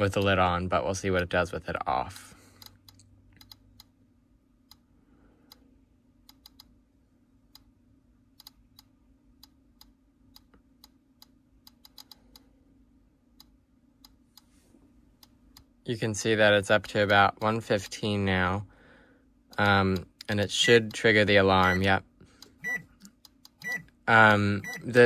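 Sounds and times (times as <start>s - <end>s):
geiger counter clicking: 2.6s - 4.0s, 6.2s - 6.8s, 8.4s - 12.5s.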